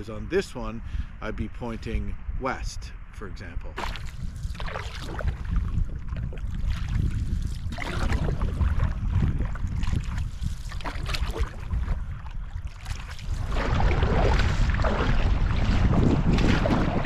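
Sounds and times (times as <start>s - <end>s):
wind buffeting microphone: 0.0s - 17.0s
canoe paddle splashing in water: 3.8s - 17.0s.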